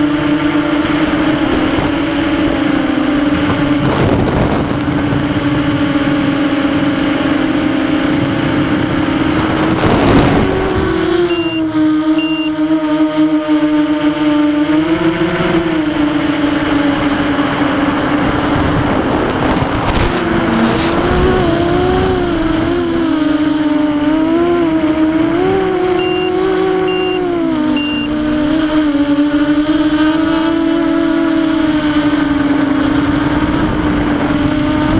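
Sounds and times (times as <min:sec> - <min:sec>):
quadcopter motors humming: 0:00.0 - 0:34.9
short high electronic beeps: 0:11.3 - 0:11.6, 0:12.2 - 0:12.5, 0:26.0 - 0:27.2, 0:27.8 - 0:28.1.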